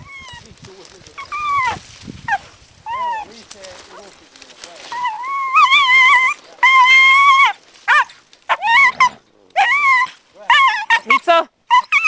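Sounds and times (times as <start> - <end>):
dog yelping: 1.2 - 3.3, 4.9 - 12.0.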